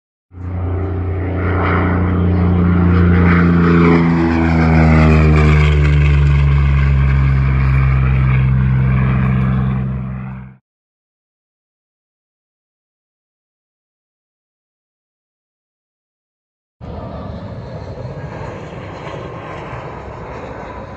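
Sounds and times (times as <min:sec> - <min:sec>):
propeller aircraft engine drone: 0:00.3 - 0:10.6, 0:16.8 - 0:20.9.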